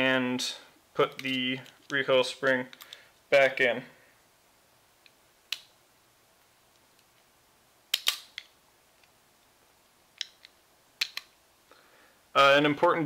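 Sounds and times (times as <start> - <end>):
pistol slide clicks: 7.9 - 8.5.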